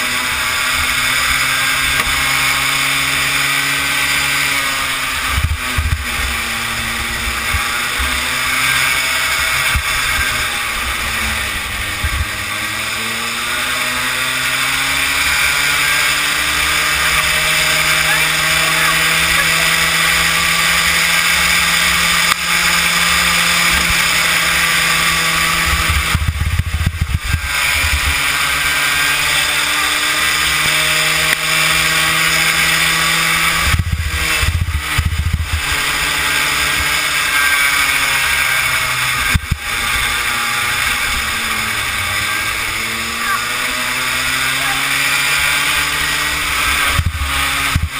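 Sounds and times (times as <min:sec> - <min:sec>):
small kart engine revving: 0:00.0 - 0:47.9
wind rushing over microphone: 0:04.8 - 0:13.2, 0:15.5 - 0:28.6, 0:32.0 - 0:36.9, 0:38.9 - 0:43.1, 0:45.9 - 0:47.9.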